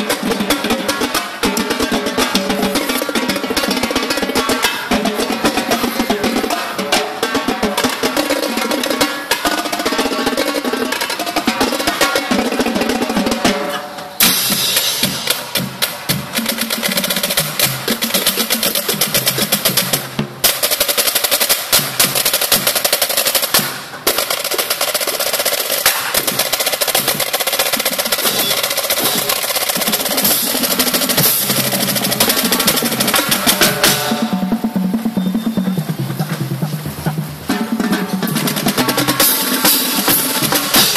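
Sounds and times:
cymbals: 0.0 - 40.9
snare drums rolling: 0.0 - 40.9
tenor drums: 0.0 - 40.9
bass drums: 27.9 - 40.9.

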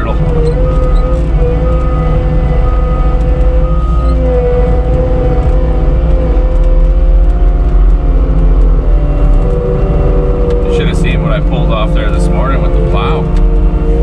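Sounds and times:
backup alarm beeping: 0.0 - 4.4
diesel engine running under load: 0.0 - 14.0
steady mechanical whine: 0.0 - 14.0.

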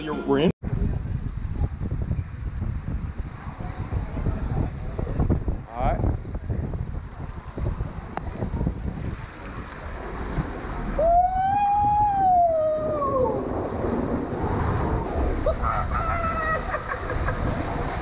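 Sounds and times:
rushing splashing water: 6.8 - 18.0.

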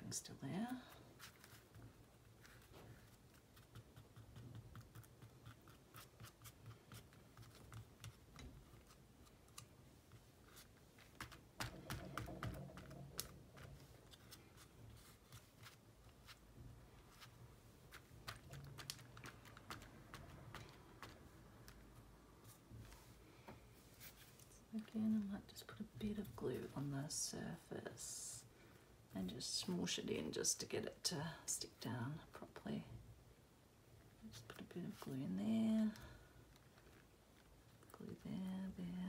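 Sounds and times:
small clicks and rustles of paper: 0.9 - 16.4, 17.1 - 23.1, 35.9 - 38.0.

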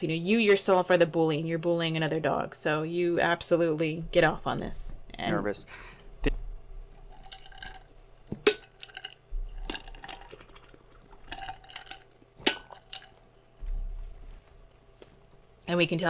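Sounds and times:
person drinking and swallowing: 6.2 - 14.0.

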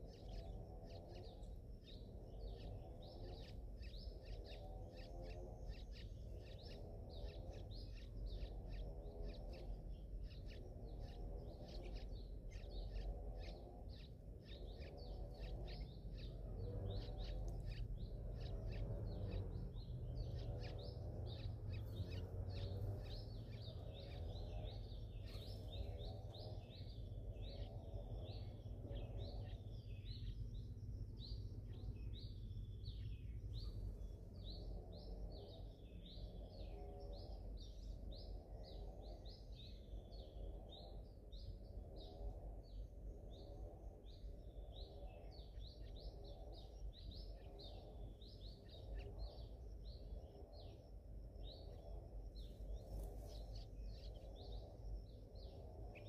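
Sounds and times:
birds chirping rapidly: 0.0 - 42.2
steady low rumble: 0.0 - 56.0.

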